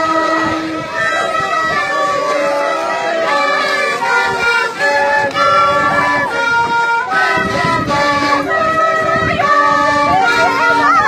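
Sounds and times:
group of flutes playing melody: 0.0s - 11.0s.

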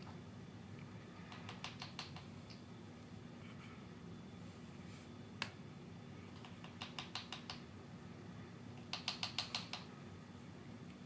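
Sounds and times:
bird claws clicking on tile: 1.3s - 2.3s, 6.4s - 7.6s, 8.8s - 9.9s.

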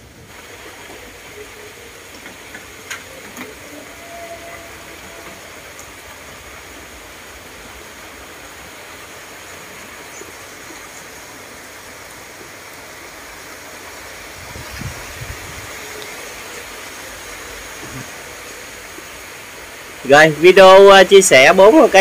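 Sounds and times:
steady rushing noise: 4.7s - 22.0s.

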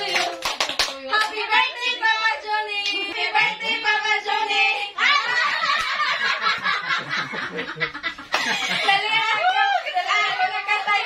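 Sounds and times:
hand clapping: 0.0s - 1.4s, 8.3s - 8.6s
people talking: 2.8s - 5.7s, 8.4s - 11.0s
people laughing: 5.0s - 11.0s.

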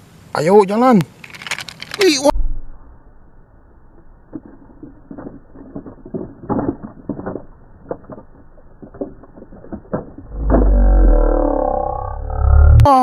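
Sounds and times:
loud low rumble: 2.3s - 4.3s
plastic toy car tumbling on dirt: 4.0s - 11.8s.

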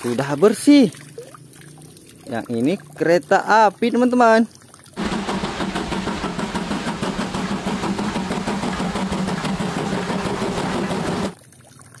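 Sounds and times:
steam locomotive running: 5.0s - 11.4s.

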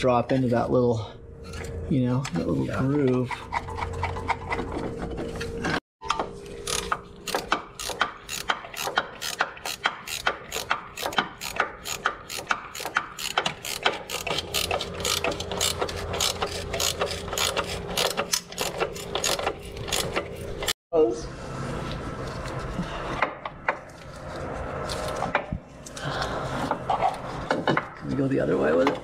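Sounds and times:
ratchet wrench clicking: 6.7s - 20.1s.

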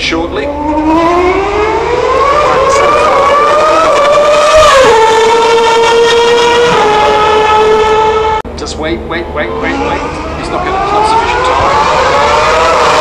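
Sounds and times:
racing car engine screaming: 0.2s - 8.4s, 9.2s - 13.0s.

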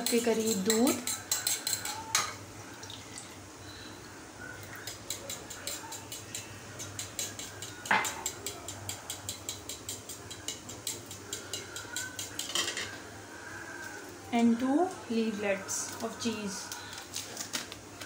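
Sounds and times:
fork clinking against bowl: 0.0s - 2.4s, 4.7s - 13.0s.

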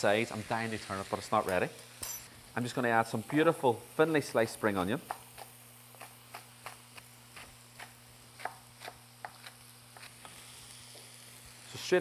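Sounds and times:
knife chopping on wooden board: 7.4s - 10.1s.

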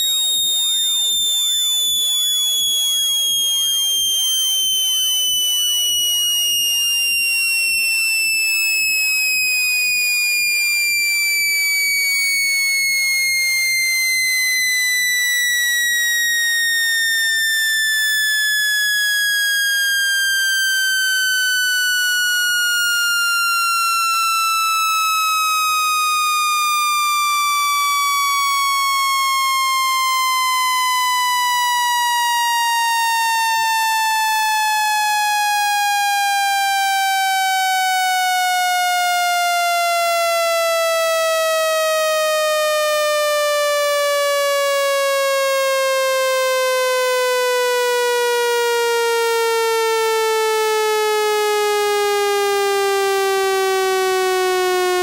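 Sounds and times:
buzzy electronic tone sweeping down: 0.0s - 24.5s.

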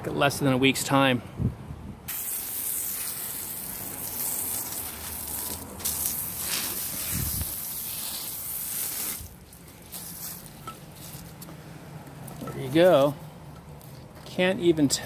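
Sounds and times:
garden hose spraying water: 2.1s - 11.5s.

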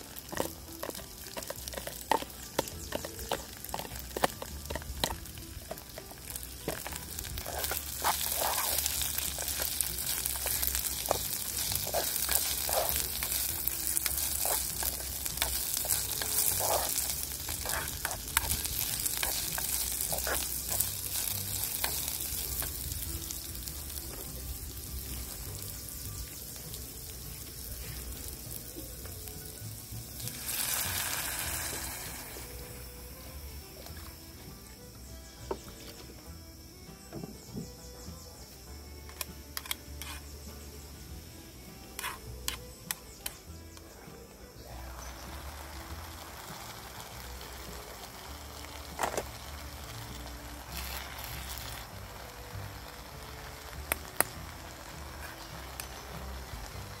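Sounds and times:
food sizzling in frying: 0.0s - 36.8s, 37.4s - 43.8s, 44.5s - 57.0s
crackling pops: 45.1s - 56.4s.

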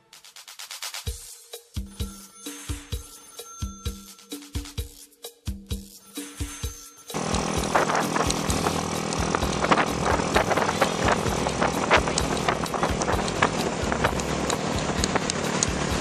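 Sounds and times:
background music: 0.0s - 16.0s
motorcycle engine: 7.2s - 16.0s
wind rushing on microphone: 7.4s - 16.0s.

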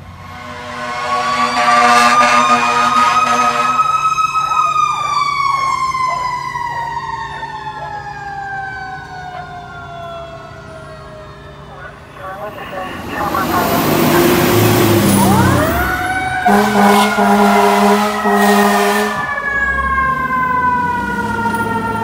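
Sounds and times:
fire engine horn blaring: 0.0s - 6.8s, 11.0s - 22.0s
siren rising and falling: 0.0s - 22.0s.

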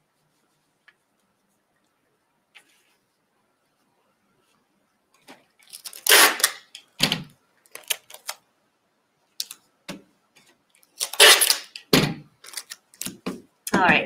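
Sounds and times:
packing tape pulled and torn: 5.6s - 6.9s, 7.7s - 8.4s, 10.8s - 13.2s.

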